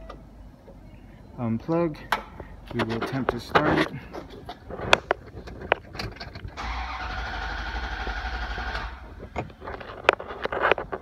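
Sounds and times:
starter motor cranking engine: 0:06.4 - 0:09.4.

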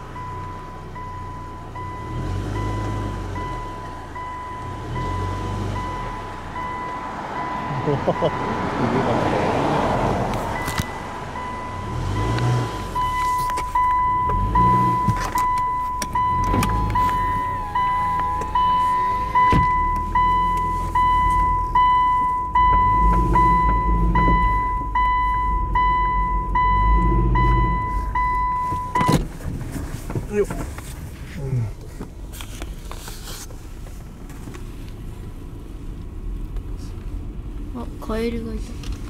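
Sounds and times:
car warning chime: 0:00.0 - 0:09.6, 0:10.4 - 0:29.3
car engine running: 0:00.0 - 0:39.0.

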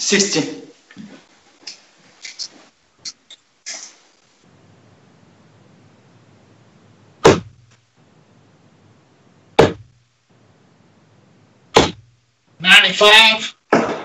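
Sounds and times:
darts striking dartboard: 0:07.2 - 0:07.7, 0:09.6 - 0:09.9, 0:11.7 - 0:12.1, 0:13.7 - 0:14.0.

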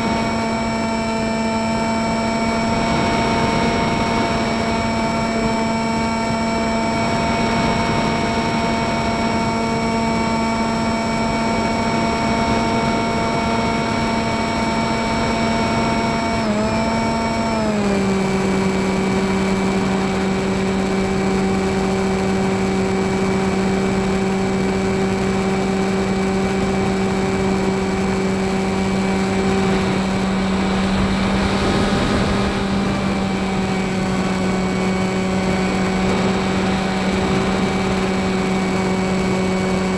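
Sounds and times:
model airplane motor whining: 0:00.0 - 0:39.9
wind rushing: 0:29.2 - 0:39.0.

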